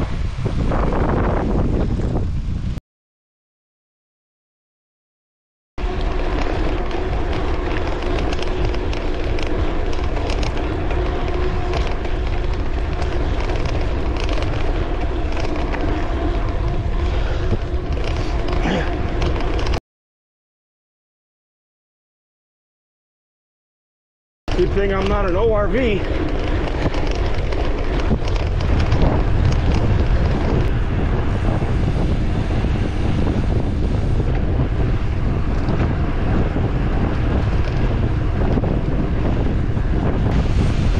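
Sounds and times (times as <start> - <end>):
bicycle tyres rolling on dirt: 0.0 - 2.8, 5.8 - 19.8, 24.5 - 40.9
wind buffeting microphone: 0.0 - 2.8, 5.8 - 19.8, 24.5 - 40.9
crackles of grit: 5.8 - 19.8, 24.5 - 40.9.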